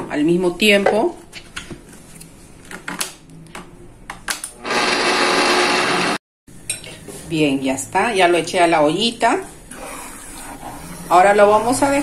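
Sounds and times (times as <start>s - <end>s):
blender running: 4.6s - 6.2s.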